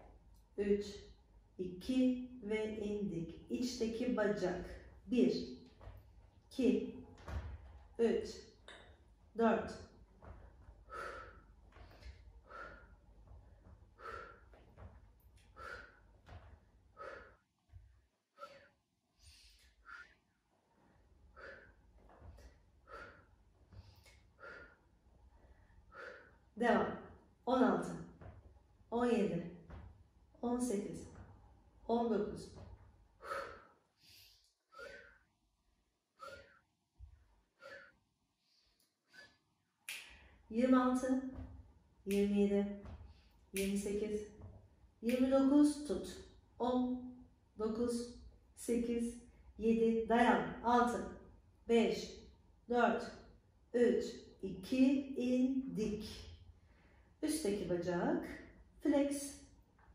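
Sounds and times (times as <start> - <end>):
woman breathing hard: 10.8 - 16.2, 16.9 - 17.5, 21.2 - 26.5, 33.2 - 35.3, 36.2 - 36.7, 37.5 - 39.5.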